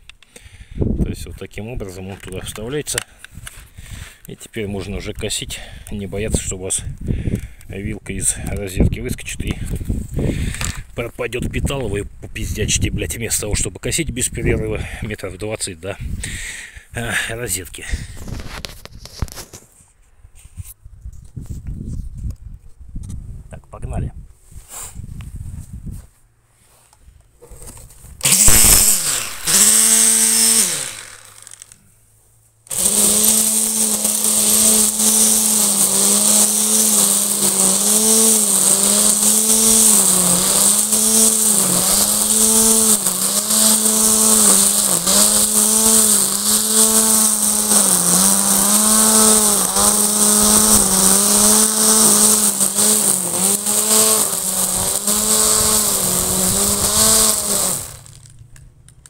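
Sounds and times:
trimmer line cutting grass: 0:27.5 - 0:31.9, 0:32.7 - 0:58.4
electric string trimmer motor: 0:28.2 - 0:31.9, 0:32.7 - 0:58.4.

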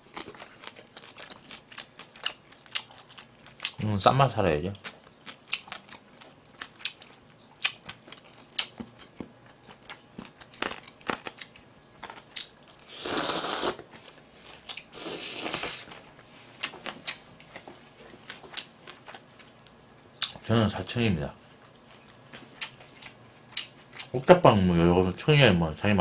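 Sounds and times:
chewing and mouth clicks: 0:00.1 - 0:03.8, 0:04.8 - 0:12.8, 0:16.6 - 0:19.6, 0:21.6 - 0:24.1
slurping noodles: 0:12.9 - 0:13.8, 0:15.0 - 0:15.9.

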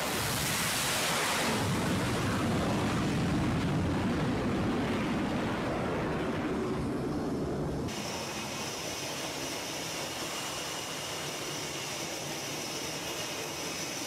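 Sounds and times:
jet engines roaring at full power: 0:00.0 - 0:14.0
steam catapult hissing rush: 0:07.9 - 0:14.0.

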